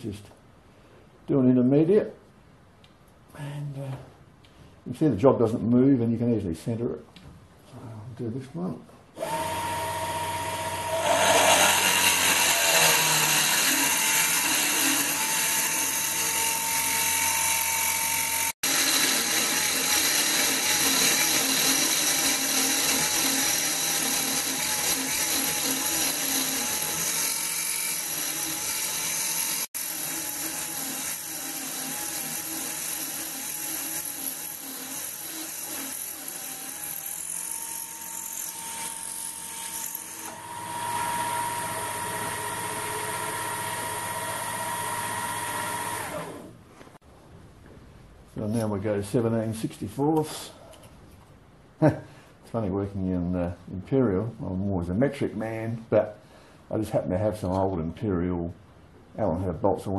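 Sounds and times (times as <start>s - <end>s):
motor whine: 9.2s - 12.9s, 40.3s - 46.5s
drill cutting hiss: 9.2s - 46.5s.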